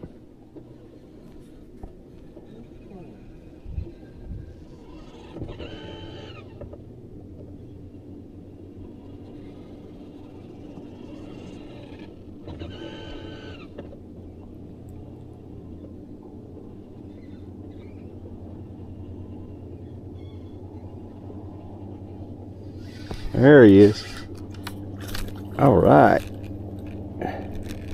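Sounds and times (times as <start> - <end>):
electric motor humming: 0.0 - 27.9
higher motor whine: 0.0 - 27.9.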